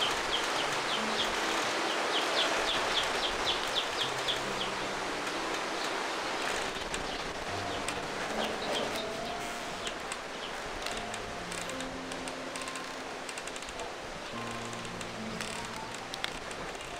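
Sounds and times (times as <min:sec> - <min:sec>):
bird chirping: 0:00.0 - 0:04.8, 0:07.0 - 0:10.6
steady outdoor hiss: 0:00.0 - 0:16.9.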